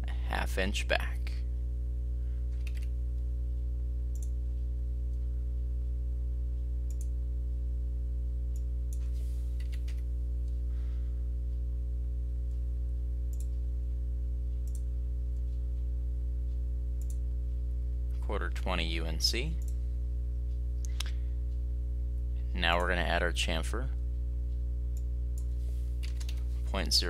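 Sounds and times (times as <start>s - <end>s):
low electrical hum: 0.0s - 27.0s
computer mouse clicking: 2.6s - 2.9s, 4.1s - 4.4s, 6.9s - 7.1s, 14.6s - 14.8s.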